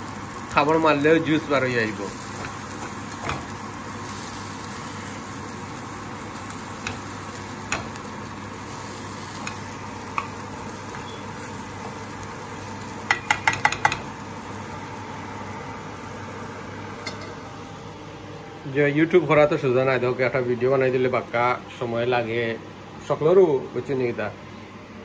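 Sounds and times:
vegetables sizzling in a frying pan: 0.0s - 18.0s
spatula knocking against pan: 13.0s - 14.1s.

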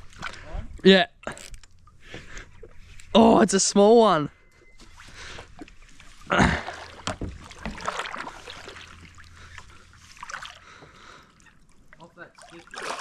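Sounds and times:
water splashing: 4.9s - 13.0s
dull thump: 7.0s - 7.8s.

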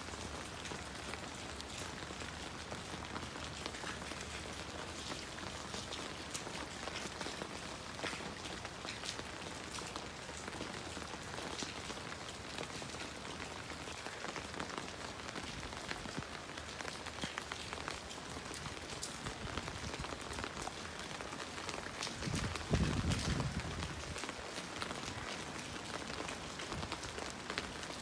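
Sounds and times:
raindrops tapping on concrete: 0.0s - 28.0s.

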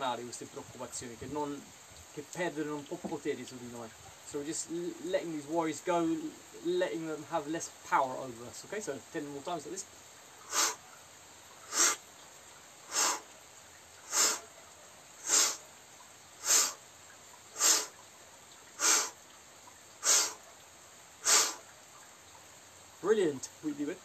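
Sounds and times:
forceful exhalations: 10.4s - 10.9s, 11.6s - 12.0s, 12.9s - 13.3s, 14.0s - 14.5s, 15.2s - 15.7s, 16.4s - 16.8s, 17.6s - 18.0s, 18.8s - 19.2s, 20.0s - 20.4s, 21.2s - 21.7s.

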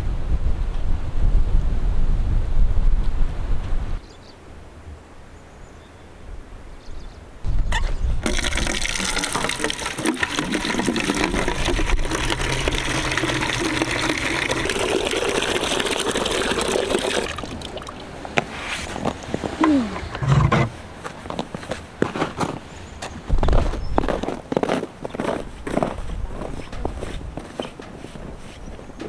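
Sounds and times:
short squeak: 7.7s - 8.1s
water pouring into plastic bucket: 8.2s - 18.2s.

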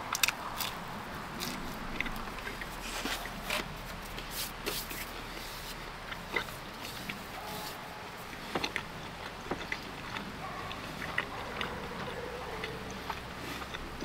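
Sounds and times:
chewing and biting pizza: 0.0s - 14.0s
mouth clicks: 8.3s - 14.0s.

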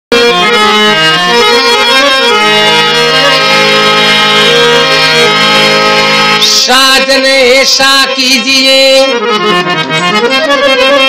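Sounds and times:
harmonium melody: 0.1s - 11.0s.

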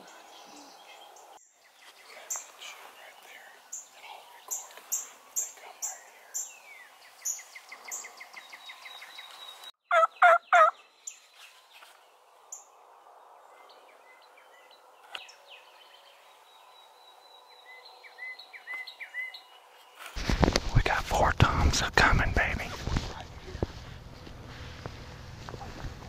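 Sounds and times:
songbirds chirping: 0.0s - 26.0s
turkey gobbling: 9.9s - 10.8s.

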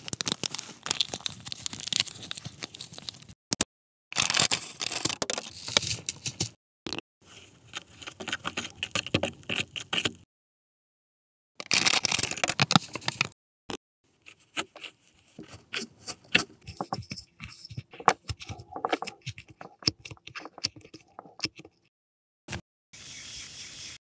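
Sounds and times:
fingers kneading dough: 14.2s - 21.8s
fingertips clicking on plastic: 15.4s - 21.8s.

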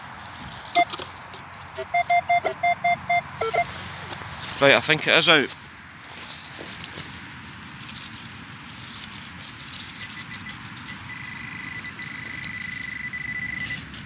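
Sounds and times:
probe scraping through soil: 0.0s - 12.8s
high-pitched alert tone: 1.8s - 3.7s.

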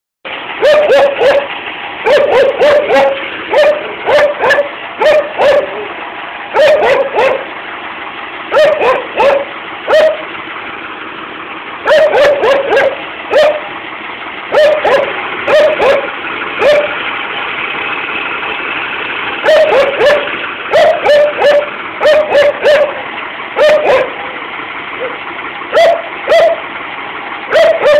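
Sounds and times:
tractor diesel engine running: 0.3s - 27.9s
dog barking: 0.6s - 7.5s, 8.5s - 10.3s, 11.8s - 13.7s, 14.5s - 17.0s, 19.4s - 24.4s, 25.0s - 26.7s, 27.5s - 27.9s.

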